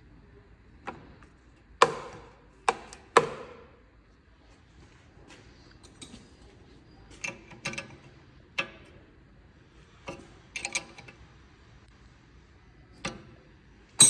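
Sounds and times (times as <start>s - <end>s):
metal tools clicking on brake caliper: 10.1s - 11.2s.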